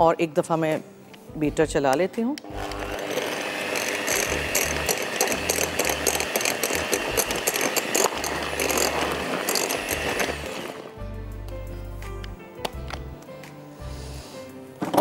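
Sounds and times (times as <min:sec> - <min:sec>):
hand mixer whining and clattering: 0:02.5 - 0:10.9.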